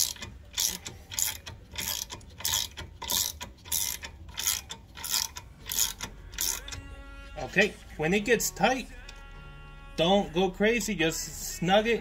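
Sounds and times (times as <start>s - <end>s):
ratchet clicking: 0.0s - 6.9s.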